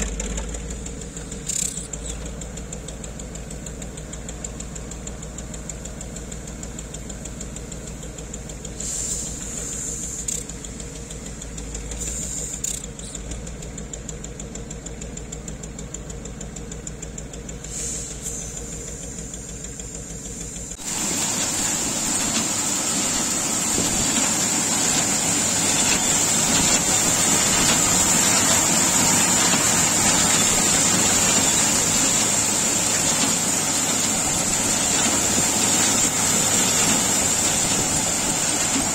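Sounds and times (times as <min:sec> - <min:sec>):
truck engine running: 0:00.0 - 0:38.9
grain-cleaning machine running: 0:17.7 - 0:38.9
high machine whine: 0:20.8 - 0:38.9.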